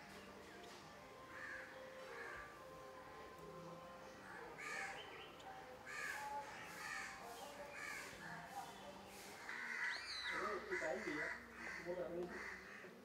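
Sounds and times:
crows cawing: 1.3s - 2.5s, 4.4s - 5.0s, 9.4s - 13.0s.

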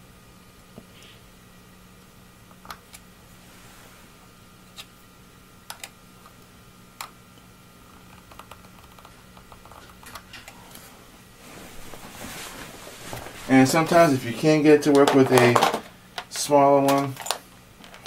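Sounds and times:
rustling handling noise: 9.7s - 18.0s.

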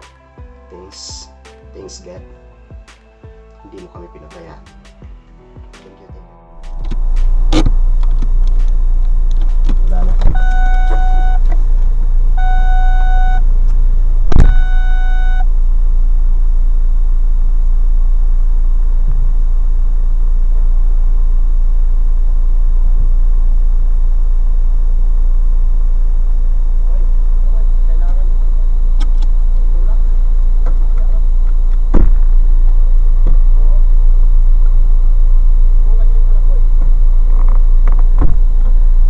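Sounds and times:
low rumble: 5.1s - 39.0s
electronic warning beeps: 10.2s - 11.7s, 12.3s - 13.6s, 14.3s - 15.6s.

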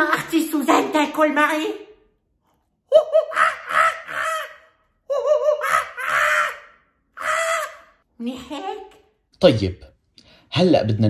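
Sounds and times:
man squealing in childlike voice: 2.9s - 8.0s.

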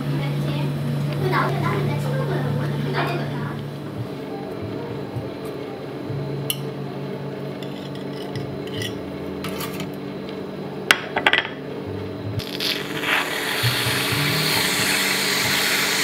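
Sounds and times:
equipment hum: 0.0s - 16.0s
utensils and dishes clinking: 7.6s - 10.0s.

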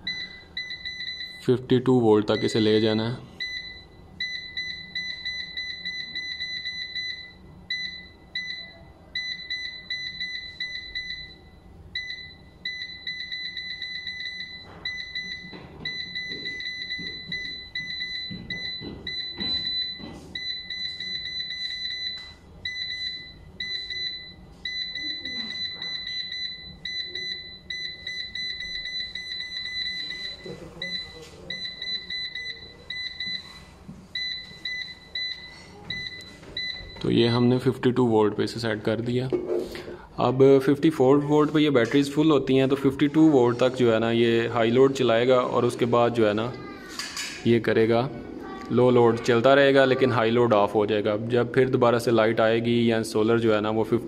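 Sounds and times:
rapid high-pitched beeps: 2.3s - 33.6s.

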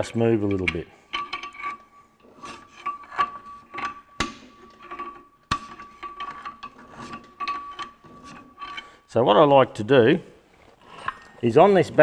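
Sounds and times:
metallic clicks and knocks: 0.3s - 9.0s.

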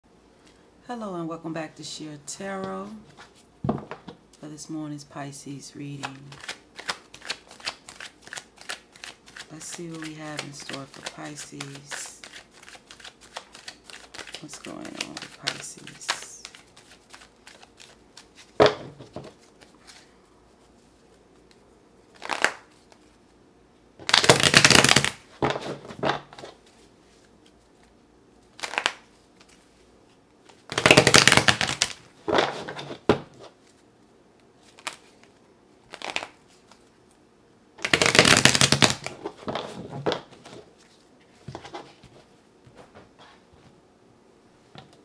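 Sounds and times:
soft card rustles: 5.8s - 23.4s, 24.1s - 37.2s
cards riffle-shuffled on a table: 5.9s - 20.1s, 21.4s - 23.1s, 24.0s - 27.9s, 28.6s - 29.8s, 30.4s - 33.8s, 34.7s - 36.9s, 37.8s - 43.1s.

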